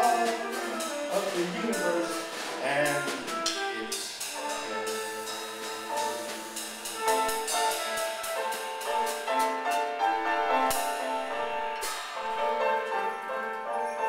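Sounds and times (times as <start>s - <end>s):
cymbal crashes: 0.0s - 14.0s
drums: 0.0s - 14.0s
flute: 0.0s - 14.0s
piano chords: 0.0s - 14.0s.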